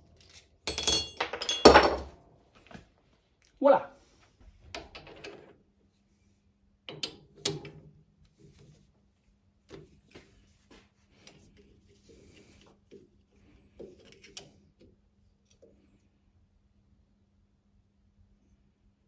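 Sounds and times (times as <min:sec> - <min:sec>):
faint steady hum: 0:00.0 - 0:19.0
metal clicks and clanks: 0:06.9 - 0:07.9.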